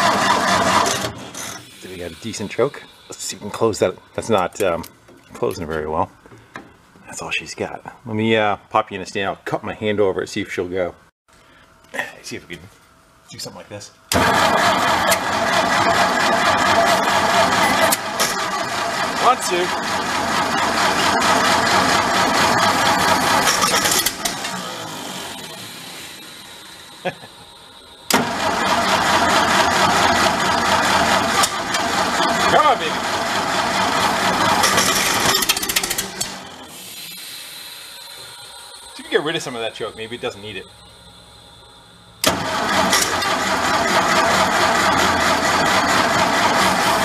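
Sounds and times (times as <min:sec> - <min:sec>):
engine cranking on starter: 0:00.0 - 0:01.6, 0:14.1 - 0:26.0, 0:28.1 - 0:36.7, 0:42.2 - 0:47.0.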